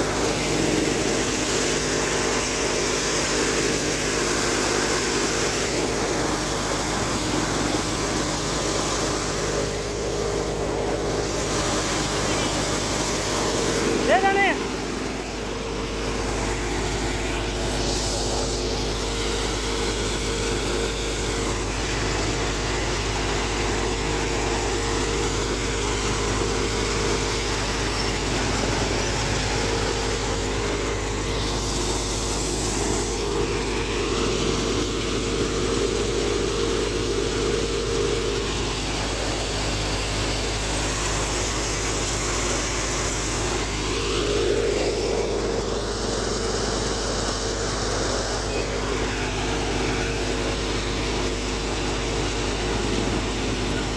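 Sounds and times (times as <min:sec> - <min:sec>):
threshing machine running: 0:00.0 - 0:53.9.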